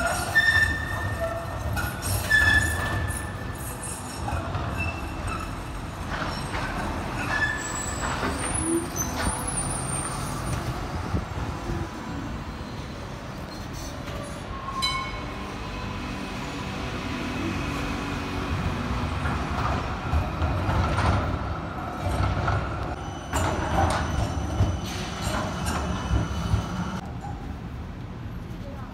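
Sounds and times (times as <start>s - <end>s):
wheels squealing: 0.0s - 10.9s, 20.0s - 27.6s
tram rumbling on rails: 0.0s - 28.9s.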